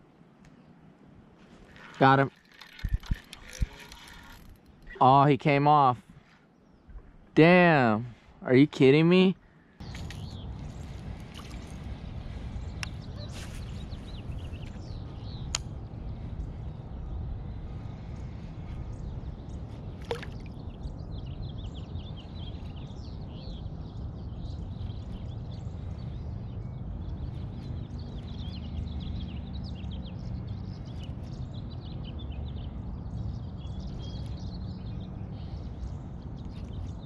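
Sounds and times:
small birds chirping: 0:01.5 - 0:37.0
steady low rumble: 0:09.4 - 0:37.0.

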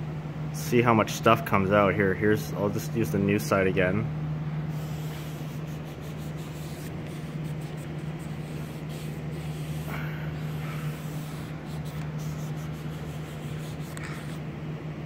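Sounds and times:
steady low hum: 0:00.0 - 0:15.0
pad wiping on metal: 0:04.7 - 0:14.4.

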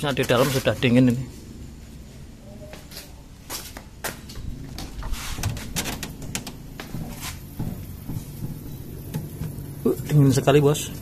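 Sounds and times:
compressor humming: 0:00.0 - 0:11.0
refrigerator door clicks and knocks: 0:04.8 - 0:06.6.

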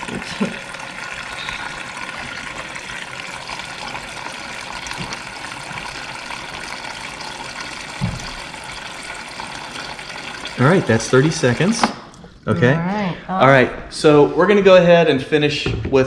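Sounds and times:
water running into plastic pitcher: 0:00.0 - 0:12.5.

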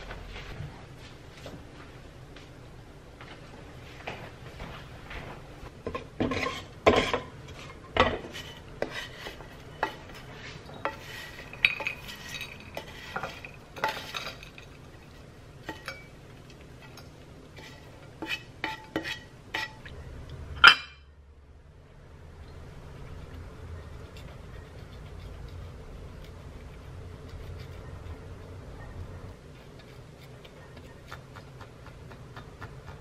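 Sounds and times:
frying pan and utensil scraping: 0:05.7 - 0:19.9, 0:20.6 - 0:21.0
dishes clinking: 0:05.8 - 0:16.2, 0:20.6 - 0:21.1.

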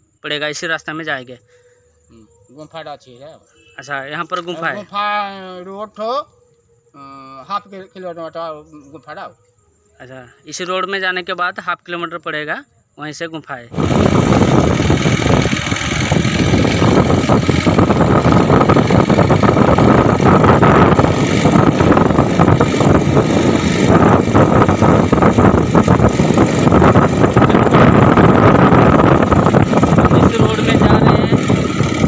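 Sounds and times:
motorcycle engine running: 0:13.7 - 0:32.0
wind rush over microphone: 0:13.7 - 0:32.0.

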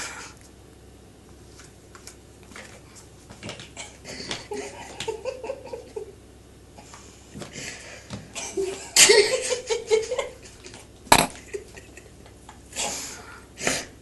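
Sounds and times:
person giggling: 0:03.8 - 0:06.2, 0:08.4 - 0:12.3.

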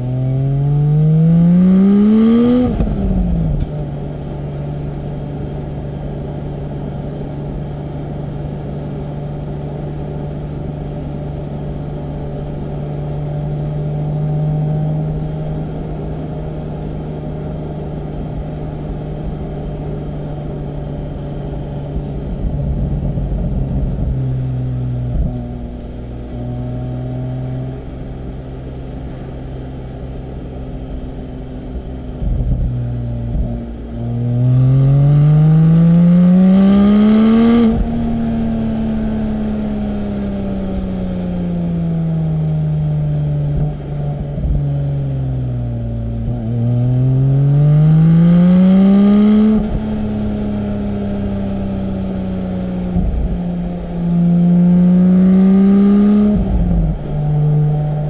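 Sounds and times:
car engine cruising and accelerating: 0:00.0 - 0:58.0.

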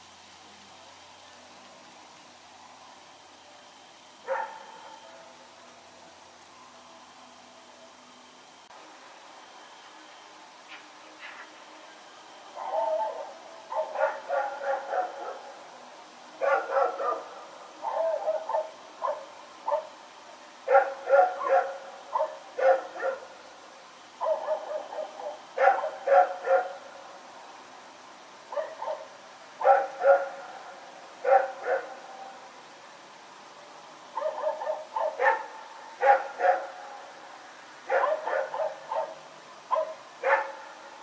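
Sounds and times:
dog barking: 0:04.3 - 0:04.8, 0:13.7 - 0:15.4, 0:16.4 - 0:20.0, 0:20.7 - 0:23.3, 0:24.2 - 0:26.8, 0:28.5 - 0:30.4, 0:31.2 - 0:32.0, 0:34.2 - 0:36.8, 0:37.9 - 0:40.7.

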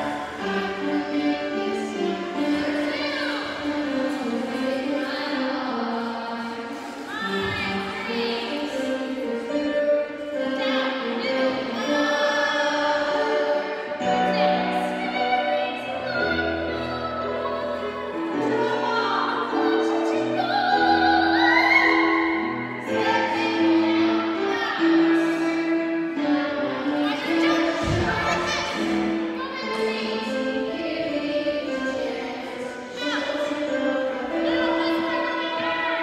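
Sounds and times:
person singing with vibrato: 0:00.0 - 0:36.0.

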